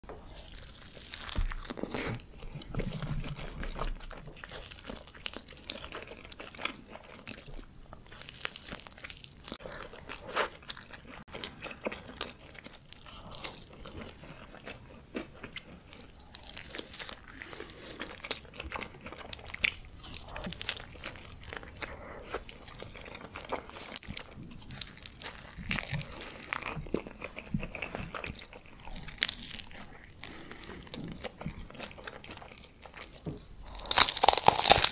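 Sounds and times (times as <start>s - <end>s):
person chewing food: 0.1s - 34.9s
crunchy clicks and crackles: 33.2s - 34.9s.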